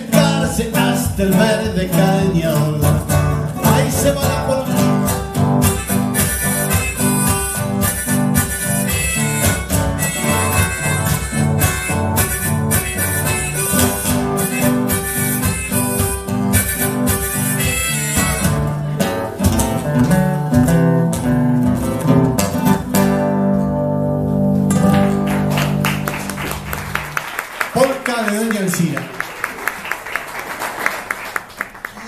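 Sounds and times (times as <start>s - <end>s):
polka on acoustic guitars: 0.0s - 27.1s
percussion: 5.0s - 18.7s.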